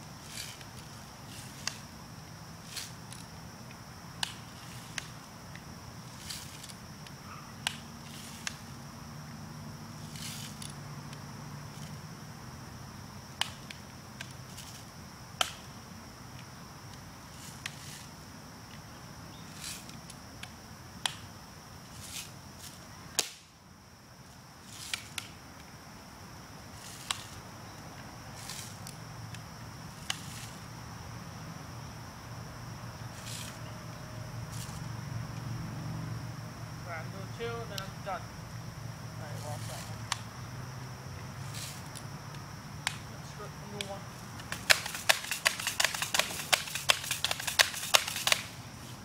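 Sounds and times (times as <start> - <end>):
high insect drone: 0.0 - 49.0
bb gun snapping and clicking: 44.4 - 48.5.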